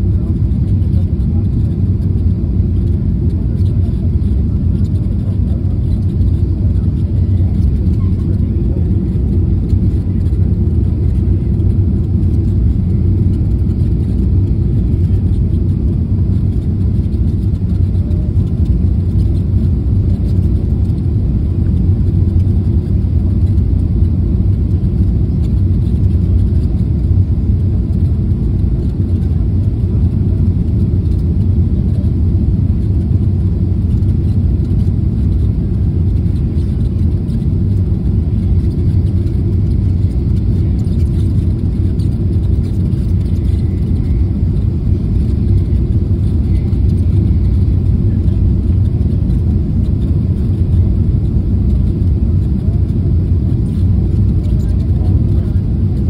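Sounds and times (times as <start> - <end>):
airplane cabin rumble: 0.0 - 56.0.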